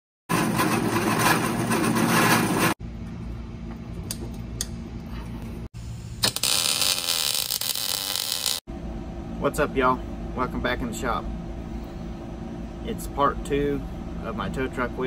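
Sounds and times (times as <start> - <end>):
steady hum: 2.5 - 15.0
angle grinder cutting steel: 6.2 - 8.6.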